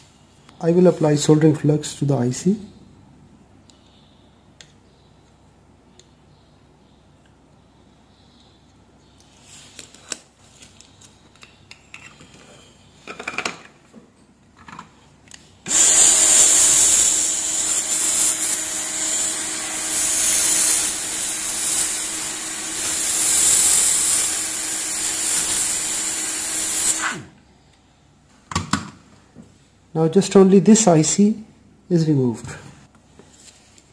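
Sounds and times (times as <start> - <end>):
faint steady hum: 0.0 - 15.7
hot air blower hissing: 15.6 - 27.4.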